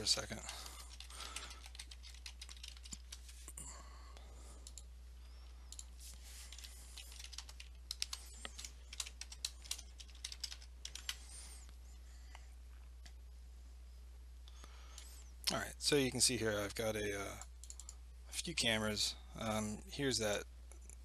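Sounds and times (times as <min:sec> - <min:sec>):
computer keyboard typing: 0:00.0 - 0:03.4, 0:05.7 - 0:11.2, 0:17.6 - 0:18.0
faint low hum: 0:00.0 - 0:21.0.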